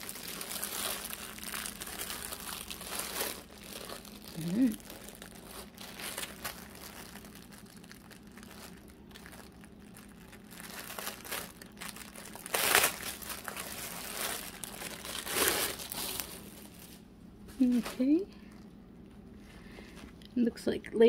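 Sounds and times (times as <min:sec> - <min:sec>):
plastic packaging crinkling: 0:00.0 - 0:20.2.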